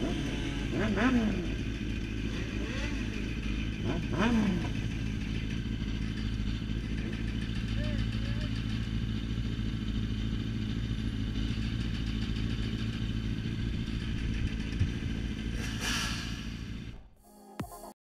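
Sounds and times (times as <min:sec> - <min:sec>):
motorcycles idling: 0:00.0 - 0:17.1
brief whoosh of noise: 0:15.6 - 0:16.9.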